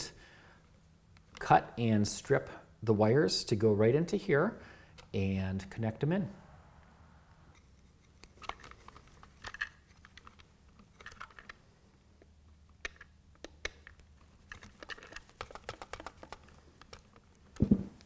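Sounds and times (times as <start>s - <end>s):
plastic faceplate handling: 7.6s - 11.6s, 12.2s - 18.0s.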